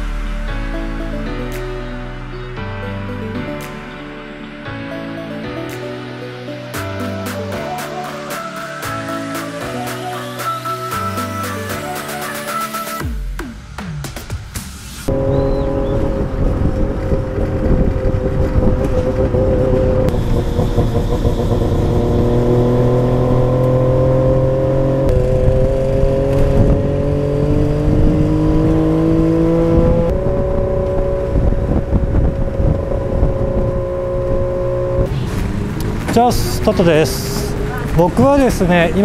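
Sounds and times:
small engine running hard: 15.1s - 39.0s.

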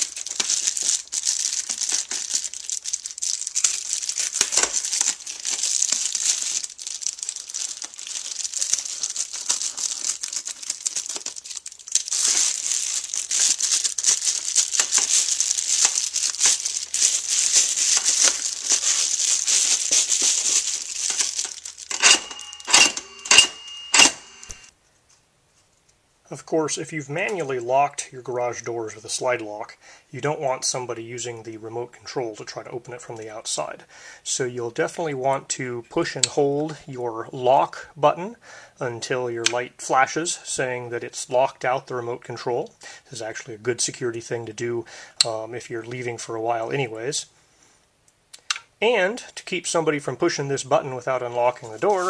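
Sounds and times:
foil insulation crinkling and tearing: 0.0s - 23.4s, 50.7s - 52.0s.

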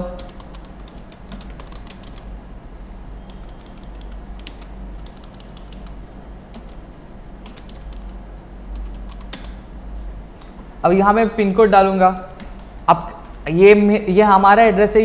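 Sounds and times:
steady low hum: 0.0s - 15.0s
keyboard key clicks: 8.8s - 9.6s.

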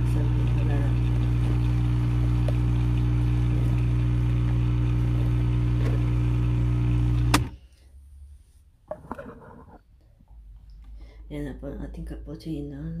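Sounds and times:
coffee machine pump buzzing: 0.0s - 7.6s.

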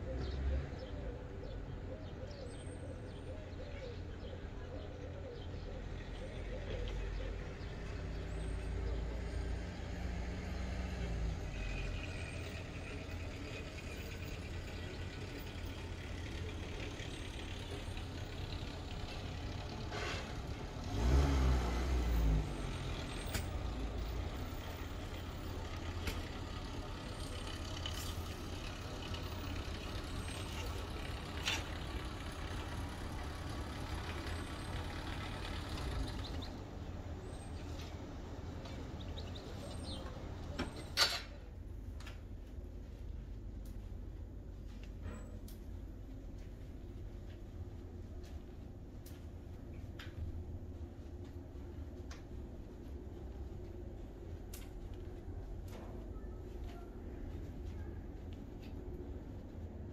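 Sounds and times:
road traffic engine rumble: 0.0s - 59.9s
loud vehicle passing: 7.3s - 40.6s.

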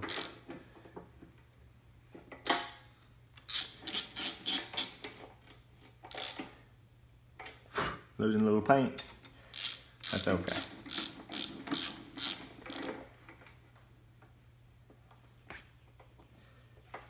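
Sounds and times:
socket ratchet clicking: 0.0s - 0.4s, 3.4s - 5.2s, 6.0s - 6.5s, 9.6s - 13.0s.

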